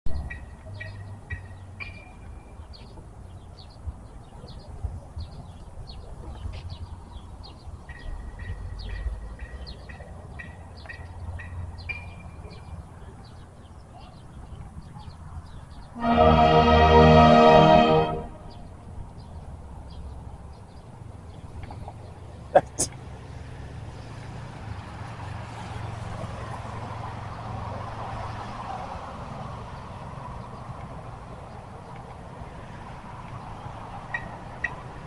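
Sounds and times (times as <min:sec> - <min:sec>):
small birds chirping: 0:00.1 - 0:16.0
marching band horns: 0:16.0 - 0:18.7.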